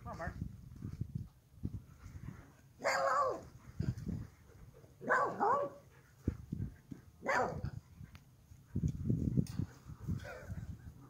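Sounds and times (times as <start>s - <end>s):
dog barking: 2.8s - 3.4s, 5.0s - 5.8s, 7.2s - 7.7s.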